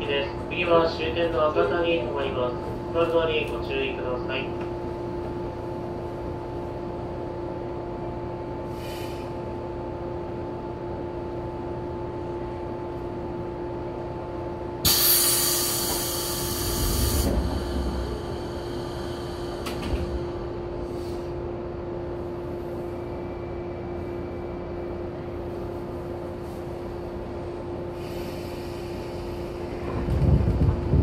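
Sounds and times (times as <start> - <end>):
train car electrical hum: 0.0 - 31.0
compressed air hiss: 14.8 - 17.3
low rumble: 15.8 - 25.6, 27.0 - 31.0.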